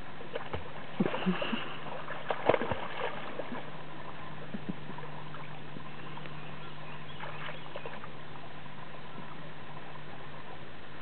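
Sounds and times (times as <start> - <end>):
steady low hum: 0.0 - 11.0
dog splashing in water: 2.2 - 3.6.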